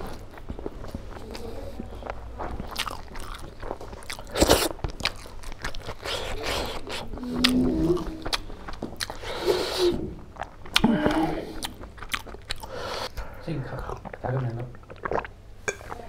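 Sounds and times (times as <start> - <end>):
man chewing and crunching food: 0.0 - 16.0
wet mouth clicks: 13.8 - 16.0.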